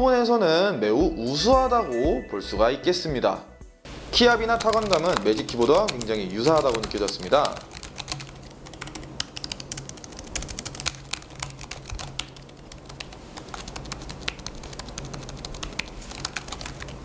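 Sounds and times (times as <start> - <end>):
keyboard typing clicks: 4.5 - 17.0.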